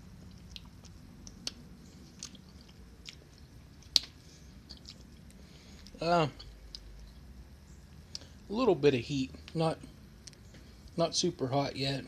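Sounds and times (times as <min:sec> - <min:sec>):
faint low hum: 0:00.0 - 0:12.0
lip smacks and mouth clicks: 0:00.2 - 0:07.3, 0:10.2 - 0:10.6.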